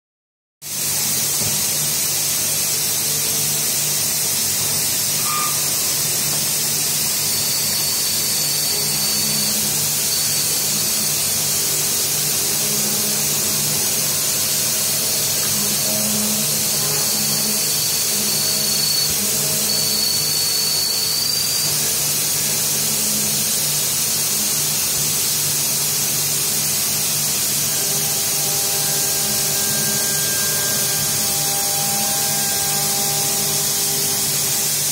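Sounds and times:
coolant spray and cutting hiss: 0:00.7 - 0:34.9
thin high whine: 0:02.7 - 0:34.9
spindle humming: 0:05.1 - 0:21.8, 0:27.3 - 0:34.7.

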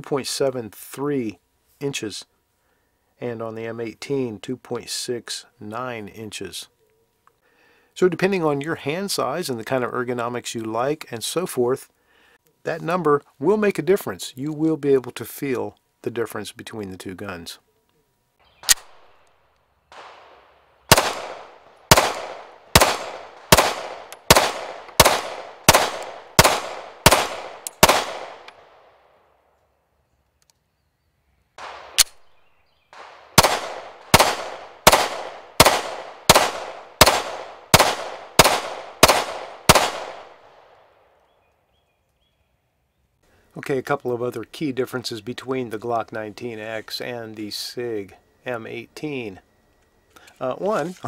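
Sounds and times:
pistol shots echoing: 0:19.9 - 0:29.0, 0:31.6 - 0:41.0.

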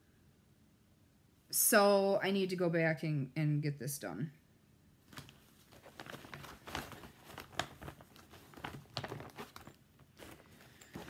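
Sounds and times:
fabric bags crinkling and rustling: 0:05.1 - 0:11.0.

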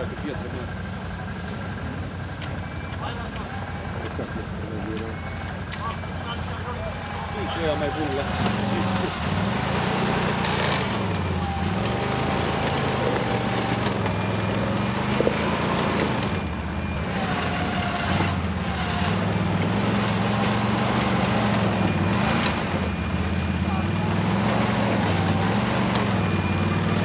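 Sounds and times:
quad engine revving: 0:05.8 - 0:27.0.

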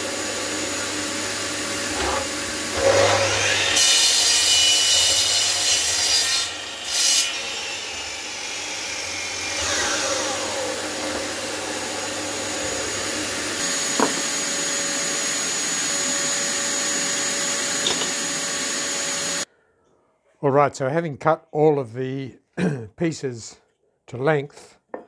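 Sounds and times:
dust extractor running: 0:00.0 - 0:03.8, 0:08.1 - 0:19.5
electric mitre saw cutting wood: 0:00.0 - 0:19.5
saw blade spinning down: 0:09.4 - 0:19.5.

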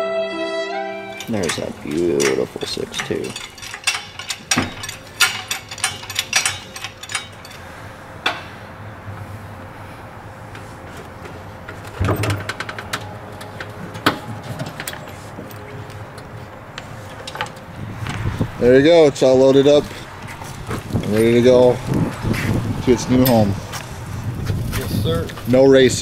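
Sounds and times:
chain clinking: 0:01.1 - 0:07.8
metal knocks: 0:01.2 - 0:07.6.

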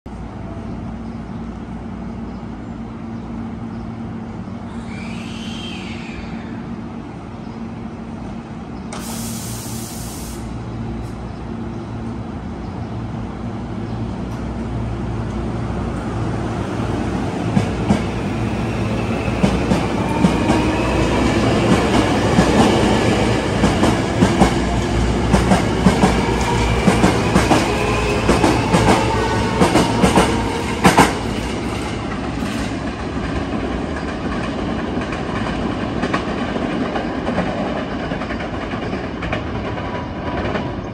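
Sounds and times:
train wheels clacking: 0:19.0 - 0:40.8.

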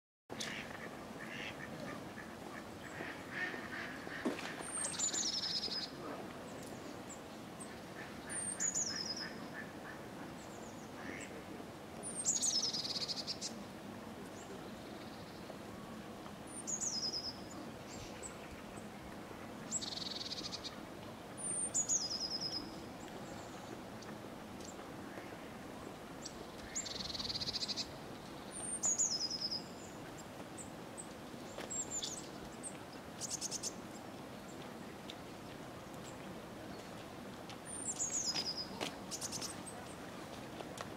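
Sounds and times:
mallards quacking: 0:00.4 - 0:05.2.

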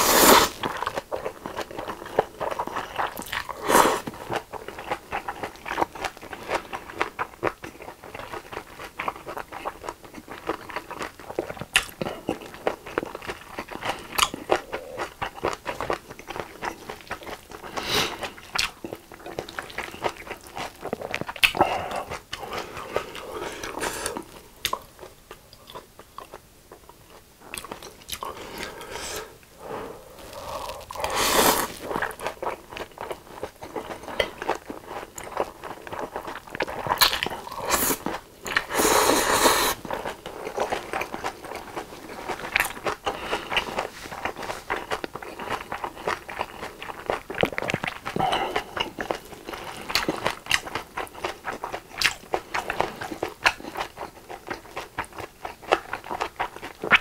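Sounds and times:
noodle slurping: 0:00.0 - 0:00.6, 0:30.1 - 0:32.2, 0:38.6 - 0:39.8
chewing with mouth clicks: 0:00.6 - 0:28.9, 0:30.2 - 0:57.0.

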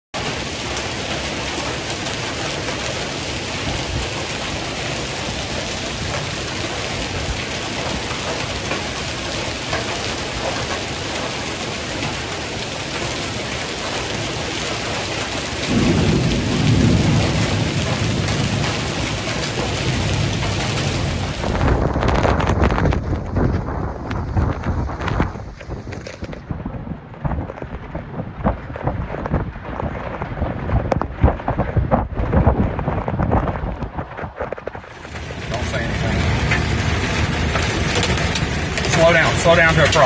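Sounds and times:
heavy rain pouring: 0:00.2 - 0:40.0
low rumble of thunder: 0:00.2 - 0:40.0.

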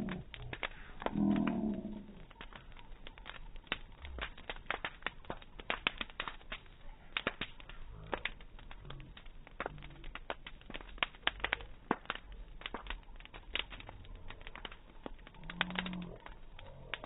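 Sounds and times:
low drawn-out voice-like sound: 0:00.0 - 0:02.3
bonfire crackling and popping: 0:00.0 - 0:17.0.

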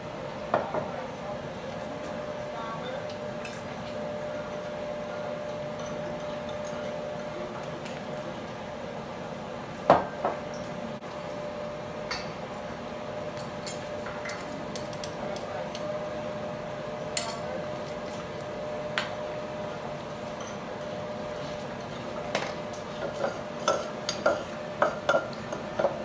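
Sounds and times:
steady background hum: 0:00.0 - 0:26.0
kitchenware clinking: 0:22.3 - 0:26.0.

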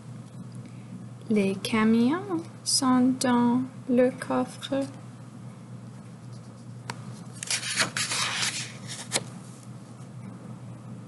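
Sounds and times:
paper page turning: 0:07.3 - 0:09.3.

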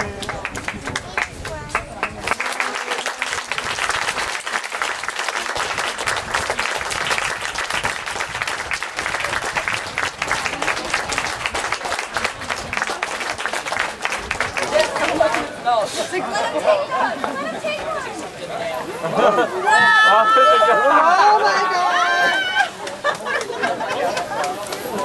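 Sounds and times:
audience applauding: 0:00.0 - 0:15.6, 0:19.9 - 0:25.0.

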